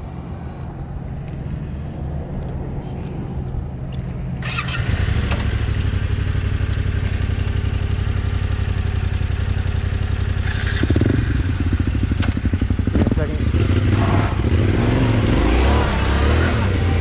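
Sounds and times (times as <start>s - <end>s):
motorcycle engine idling: 4.5s - 13.9s.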